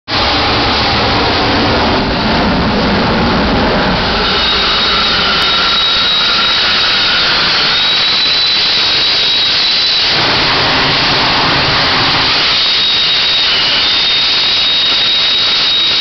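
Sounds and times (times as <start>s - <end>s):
faint high whine: 0.1s - 16.0s
propane hissing from tank: 4.2s - 16.0s.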